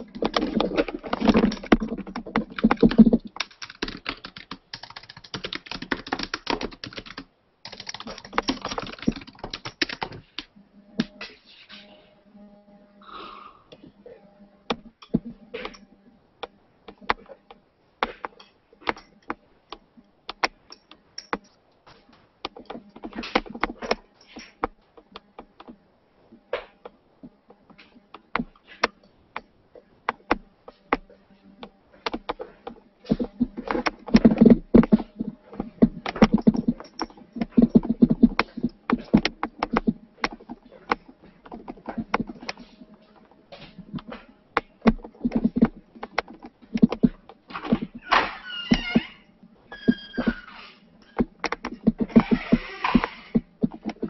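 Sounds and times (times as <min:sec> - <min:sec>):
handling noise clicks and knocks: 0:00.0 - 0:11.3, 0:14.7 - 0:49.0, 0:49.9 - 0:54.0.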